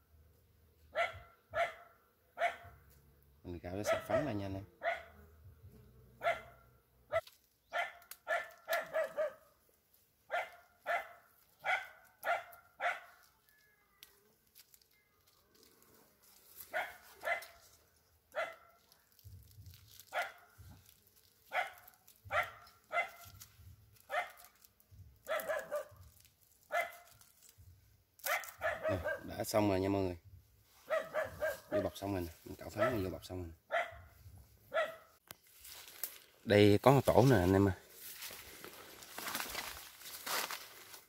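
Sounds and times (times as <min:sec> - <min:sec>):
dog barking: 0:00.9 - 0:02.8, 0:03.8 - 0:05.2, 0:06.2 - 0:09.5, 0:10.3 - 0:13.2, 0:16.7 - 0:17.6, 0:18.3 - 0:18.8, 0:20.1 - 0:20.6, 0:21.5 - 0:23.3, 0:24.1 - 0:24.5, 0:25.2 - 0:26.0, 0:26.7 - 0:27.1, 0:28.2 - 0:29.4, 0:30.8 - 0:32.0, 0:32.7 - 0:33.1, 0:33.7 - 0:34.1, 0:34.7 - 0:35.2.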